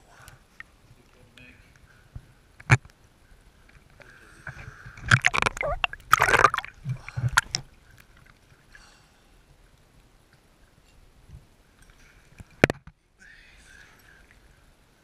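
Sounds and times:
water sloshing and gurgling: 3.6 - 8.8.

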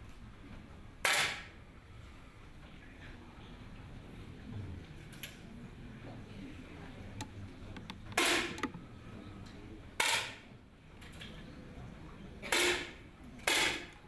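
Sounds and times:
air rifle shots with room echo: 1.0 - 1.6, 8.2 - 8.7, 10.0 - 10.5, 12.4 - 14.0.

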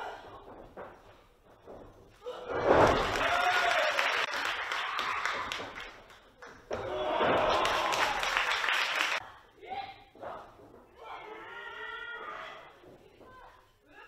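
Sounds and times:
crowd applause and shouting: 3.0 - 5.9, 6.7 - 9.2.

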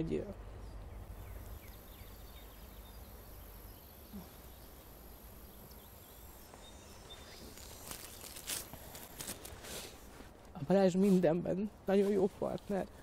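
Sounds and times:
low background hum: 0.0 - 13.0
faint bird chirps: 0.4 - 9.1.

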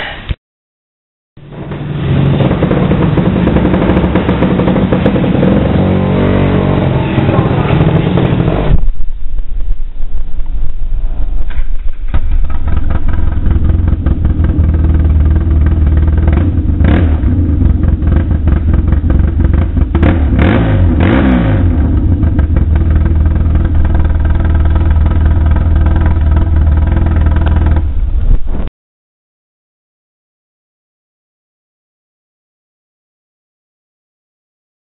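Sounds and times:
atv engine revving: 1.4 - 8.8, 12.2 - 28.0.

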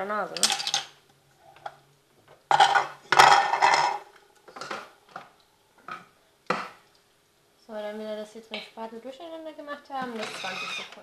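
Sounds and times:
kitchen utensils clattering: 2.5 - 4.9.

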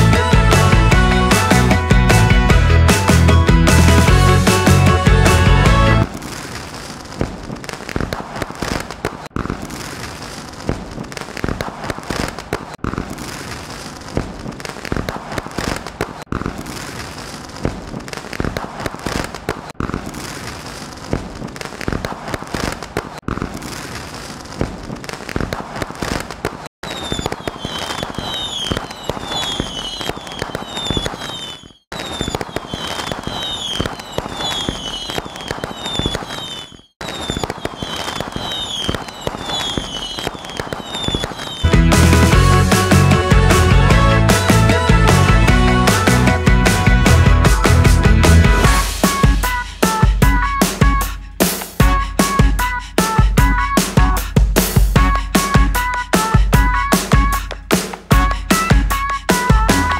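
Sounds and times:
fireworks bangs: 0.0 - 59.9
fireworks crackling and popping: 0.0 - 59.9
shrill falling whistles: 26.8 - 41.7.

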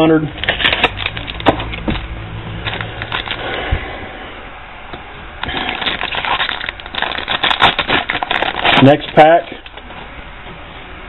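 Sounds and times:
foil wrapper crinkling: 0.4 - 3.4, 5.4 - 9.9.

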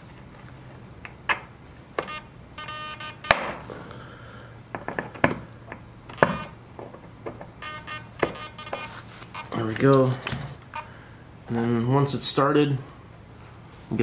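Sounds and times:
brief buzzing tone: 2.0 - 3.6, 6.1 - 6.6, 7.6 - 9.6, 10.7 - 11.0.

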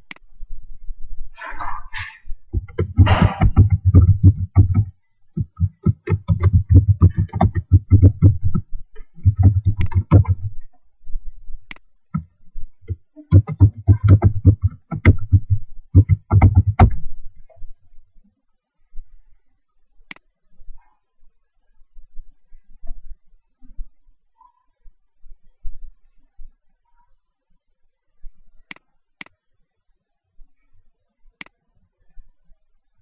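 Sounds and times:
typing on computer keyboard: 2.6 - 10.5, 12.9 - 17.0.

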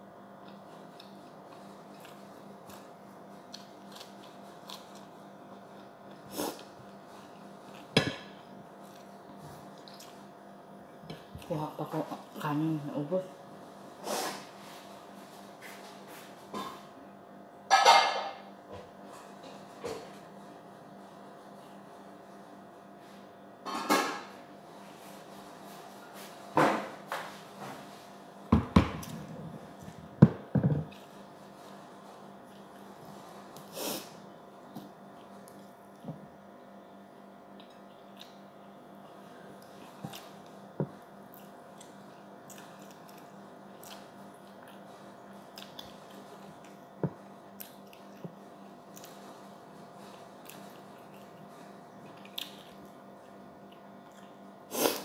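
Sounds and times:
steady background hum: 0.0 - 55.0
dishes knocking and clattering: 30.2 - 30.9.

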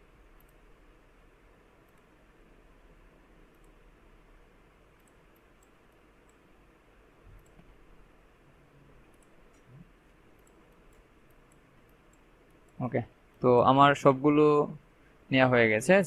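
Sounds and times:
faint room hiss: 0.0 - 16.0
computer mouse clicks: 0.2 - 0.6, 1.8 - 2.2, 3.5 - 3.8, 4.9 - 6.5, 7.3 - 7.8, 9.0 - 13.4.

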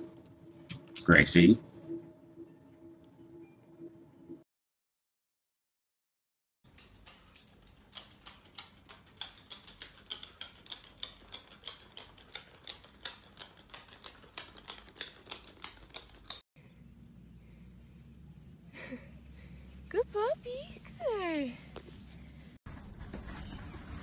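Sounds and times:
faint low background: 0.0 - 4.5.

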